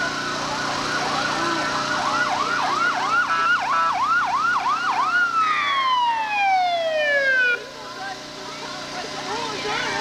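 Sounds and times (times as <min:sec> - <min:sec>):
ambulance siren yelping: 0:00.6 - 0:07.7.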